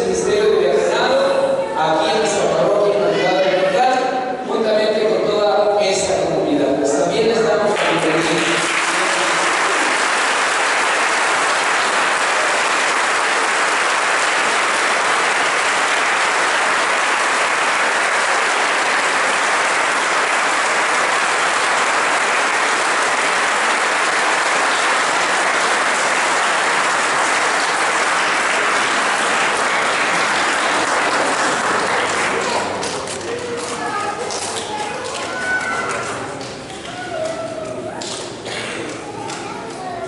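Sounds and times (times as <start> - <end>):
crowd applauding: 7.7 - 37.4.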